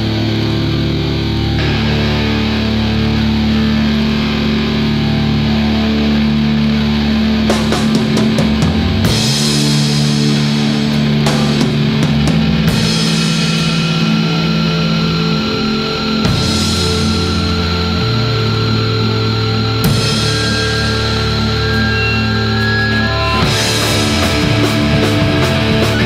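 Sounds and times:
rock song with guitars and drums: 0.0 - 26.0
cymbals ringing: 7.5 - 26.0.

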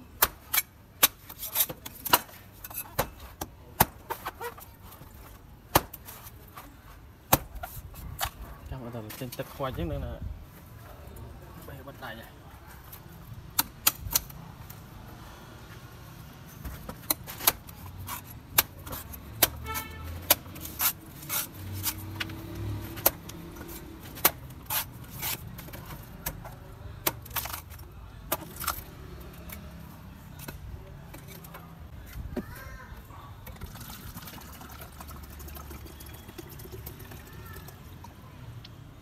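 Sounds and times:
knife chopping coconuts: 0.1 - 4.4, 5.7 - 6.3, 7.3 - 8.4, 16.8 - 29.8.

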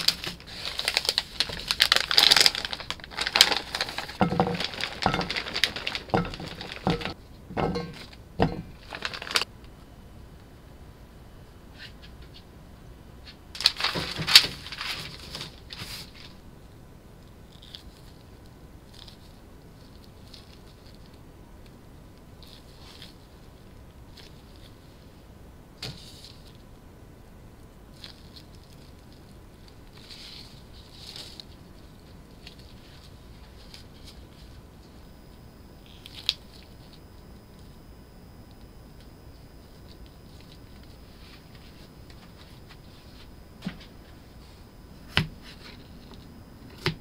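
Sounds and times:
rattling clatter of handling: 3.2 - 9.4.

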